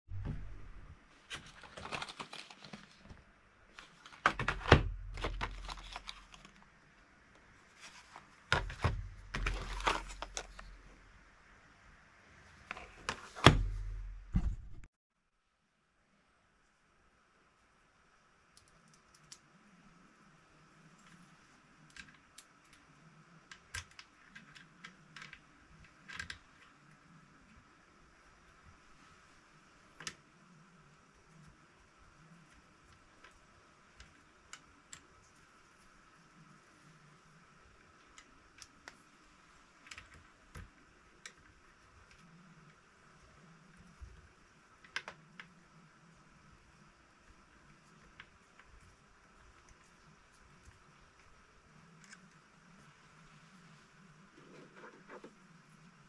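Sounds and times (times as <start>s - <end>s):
plastic blister packs crackling: 1.3s - 6.7s, 8.1s - 10.8s.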